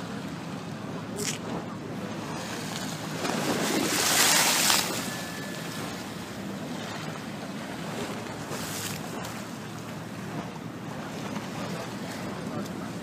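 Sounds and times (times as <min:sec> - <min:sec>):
wind: 0:00.0 - 0:13.0
wave surging and breaking: 0:01.0 - 0:13.0
sea washing against stone wall: 0:01.1 - 0:13.0.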